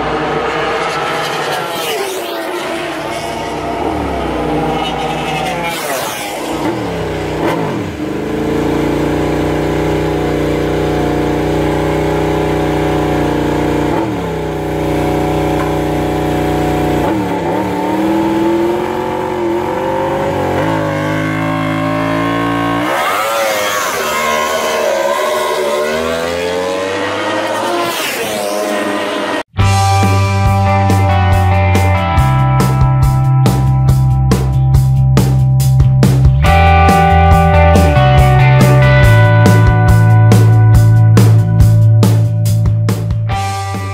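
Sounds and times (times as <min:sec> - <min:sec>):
engine rising in pitch: 0:00.0 - 0:31.2.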